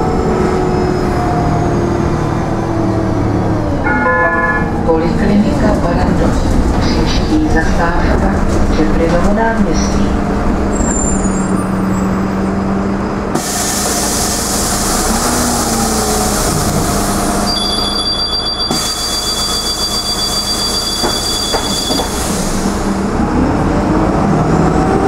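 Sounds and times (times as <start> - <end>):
bus diesel engine humming: 0.0 - 25.0
high steady tone: 3.8 - 5.0
loud hiss of air: 13.4 - 17.4.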